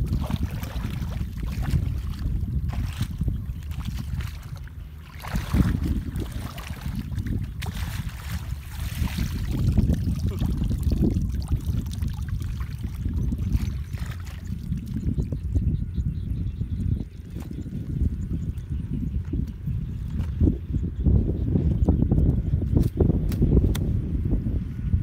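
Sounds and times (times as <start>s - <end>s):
feet wading through muddy water: 0.0s - 15.4s.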